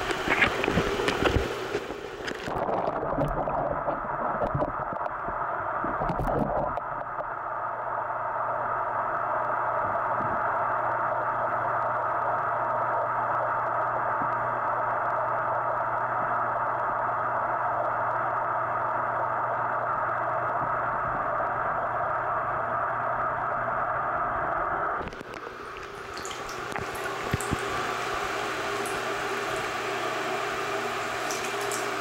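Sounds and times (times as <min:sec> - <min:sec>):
muffled underwater hiss: 0:00.0 - 0:06.8
low hum: 0:00.0 - 0:32.0
water drips and splashes: 0:25.2 - 0:30.1, 0:30.9 - 0:32.0.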